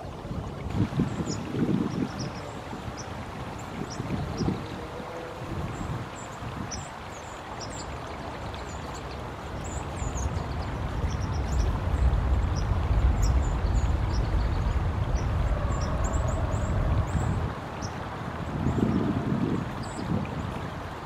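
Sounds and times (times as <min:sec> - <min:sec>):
low rumble: 0:10.0 - 0:17.6.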